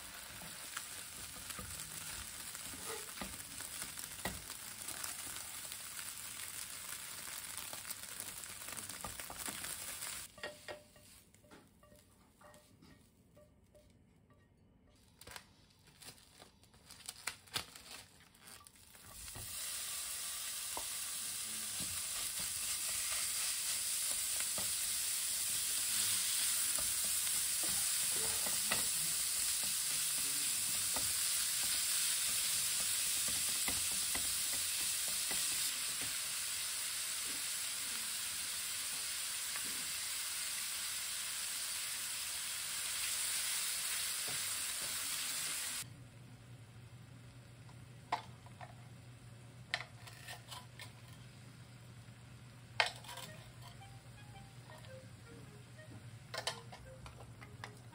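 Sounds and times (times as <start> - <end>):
meat sizzling in a frying pan: 0.0 - 10.3, 18.9 - 45.8
spatula stirring in a pan: 21.7 - 37.6.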